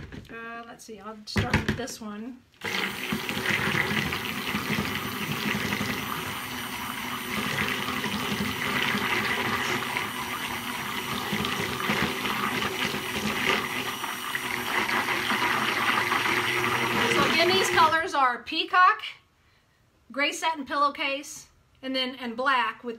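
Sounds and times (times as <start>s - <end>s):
stick blender whirring: 2.6s - 18.0s.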